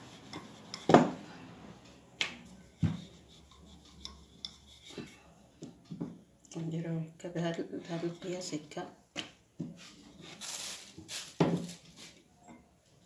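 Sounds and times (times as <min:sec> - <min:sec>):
rolling pin rubbing dough: 0:00.0 - 0:01.2, 0:02.5 - 0:05.4.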